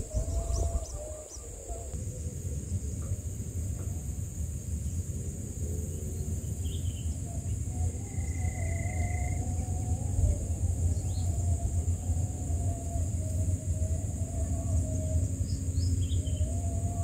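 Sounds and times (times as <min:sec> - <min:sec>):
faint wavering hum: 0:00.0 - 0:17.0
high-pitched insect drone: 0:00.0 - 0:17.0
low rumble: 0:00.0 - 0:17.0
faint steady whistle: 0:05.8 - 0:17.0.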